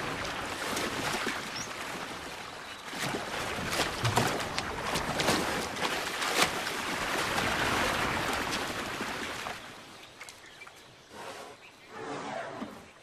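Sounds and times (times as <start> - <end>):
elephants splashing in water: 0.0 - 10.5.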